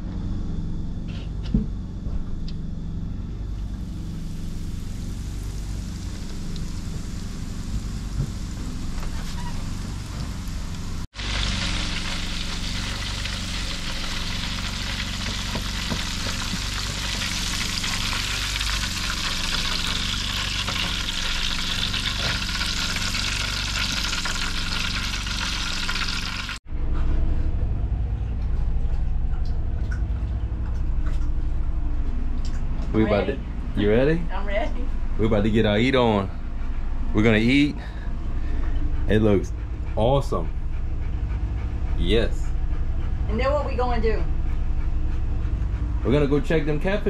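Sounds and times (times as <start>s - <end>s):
low hum: 0.0s - 47.0s
deep frying sizzle: 3.7s - 26.6s.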